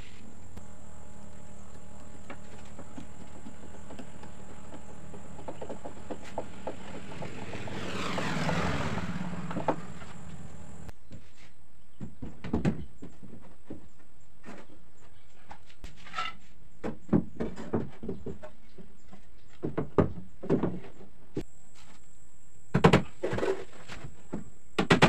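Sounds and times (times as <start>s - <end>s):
steady hum: 0.0s - 10.9s
passing engine: 3.4s - 10.9s.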